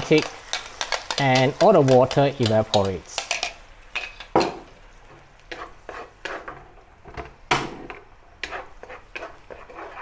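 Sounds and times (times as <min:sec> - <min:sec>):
paste sizzling in oil: 0:00.0 - 0:06.9, 0:08.3 - 0:10.0
spatula scraping a wok: 0:05.0 - 0:06.9, 0:07.9 - 0:10.0.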